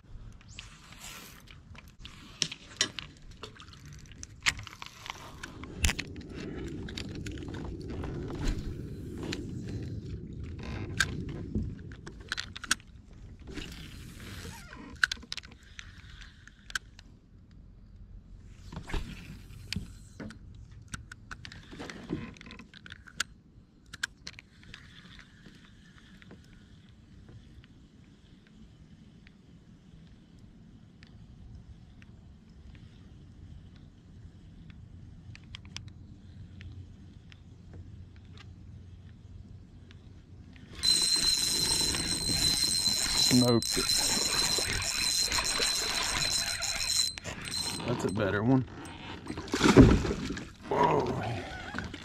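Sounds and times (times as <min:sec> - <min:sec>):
fishing gear clicking and clattering: 0:01.5 - 0:09.6, 0:10.4 - 0:13.7, 0:40.6 - 0:50.7.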